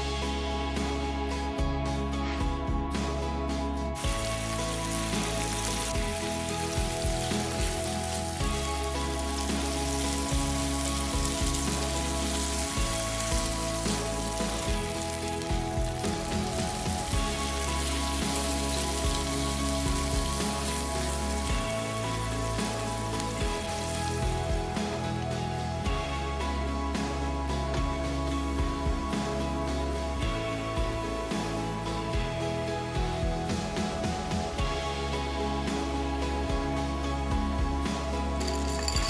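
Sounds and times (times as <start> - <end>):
background music: 0.0 - 39.0
food sizzling in a frying pan: 4.0 - 32.5.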